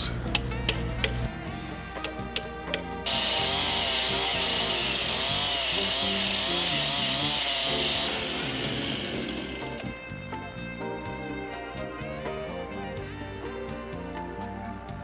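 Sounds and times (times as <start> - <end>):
background music: 0.0 - 15.0
chainsaw cutting log: 3.0 - 10.0.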